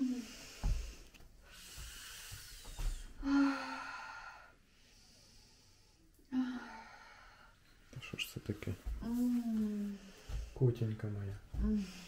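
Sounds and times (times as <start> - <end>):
woman breathing heavily: 0.0 - 7.8, 8.9 - 10.7, 11.5 - 12.0.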